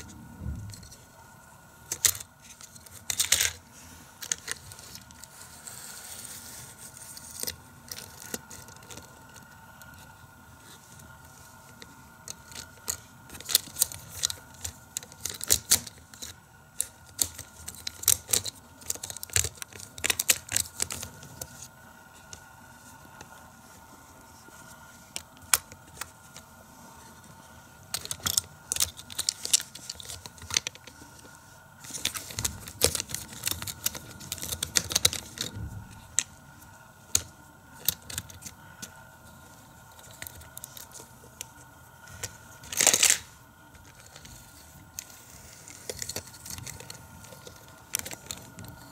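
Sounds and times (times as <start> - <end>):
plastic toys clicking and rattling: 1.8 - 10.1, 10.9 - 22.4, 27.8 - 39.1, 39.9 - 48.9.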